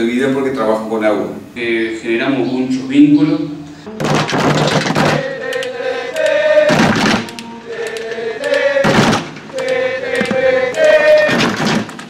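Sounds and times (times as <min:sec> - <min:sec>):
group of people singing: 0:04.5 - 0:12.0.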